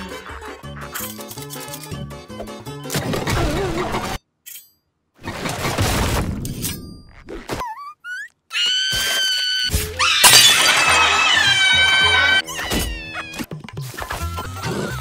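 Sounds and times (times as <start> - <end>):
glass shattering: 10.1 - 11.5.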